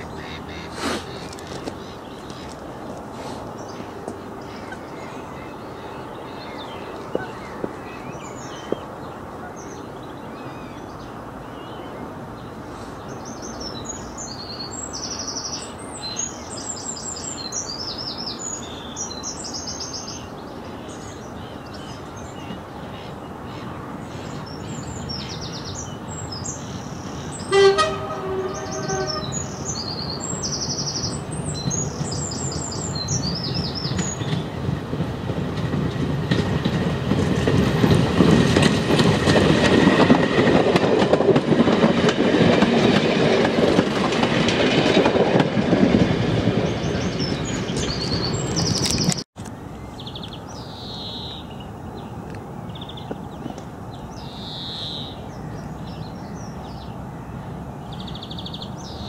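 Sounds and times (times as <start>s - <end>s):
songbirds singing: 0.0s - 36.8s, 46.5s - 59.0s
train rumble: 0.0s - 49.2s
train horn blast: 27.5s - 29.6s.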